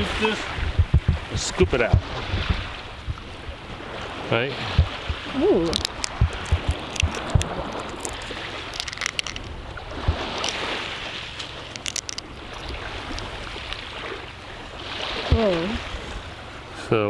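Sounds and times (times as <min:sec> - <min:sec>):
wind buffeting microphone: 0:00.0 - 0:16.4
steady surf: 0:00.0 - 0:17.0
shell clicking and crackling: 0:04.9 - 0:09.6, 0:10.4 - 0:10.6, 0:11.4 - 0:13.8.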